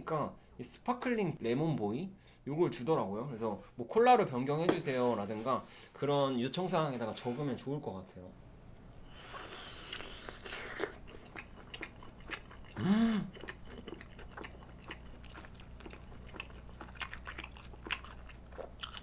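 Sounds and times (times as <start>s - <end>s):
biting and chewing crunches: 9.9s - 19.0s
person humming: 12.8s - 13.4s.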